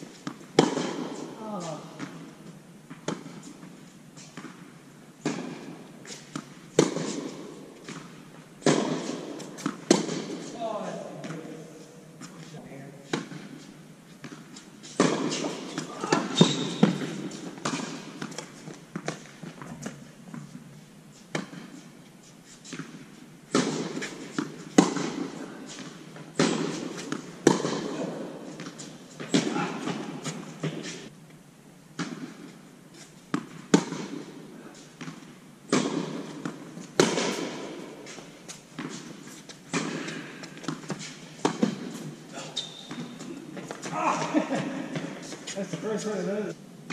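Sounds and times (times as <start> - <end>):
tennis ball hit and bouncing: 0.2 - 2.2, 2.9 - 3.7, 5.2 - 10.5, 13.1 - 13.6, 14.2 - 20.6, 21.3 - 21.8, 22.7 - 30.9, 33.3 - 46.0.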